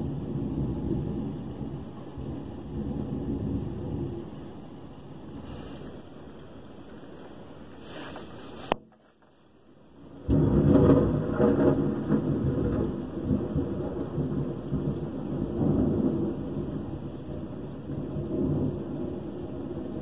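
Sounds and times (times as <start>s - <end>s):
thunder clap and rumble: 0.0s - 5.5s, 10.0s - 20.0s
rain hissing: 0.0s - 20.0s.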